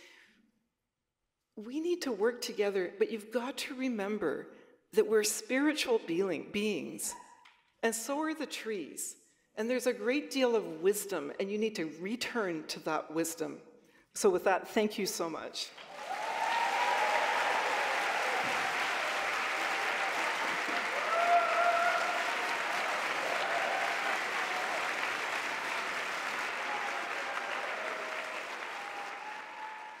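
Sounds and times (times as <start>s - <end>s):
audience applauding: 15.8s - 30.0s
cheers: 15.8s - 30.0s.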